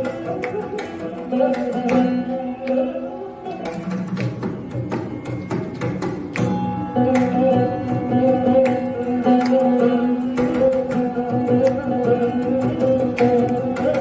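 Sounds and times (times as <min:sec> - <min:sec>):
plucked veena melody: 0:00.0 - 0:14.0
mridangam drum strokes: 0:03.4 - 0:14.0.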